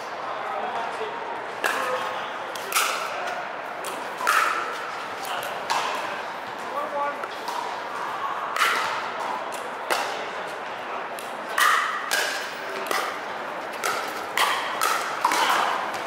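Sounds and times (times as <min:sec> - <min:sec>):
paddles hitting plastic ball: 0:11.1 - 0:16.0.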